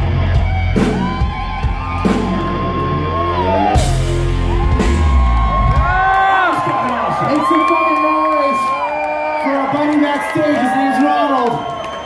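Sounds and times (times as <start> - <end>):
heavy metal band playing: 0.0 - 6.7.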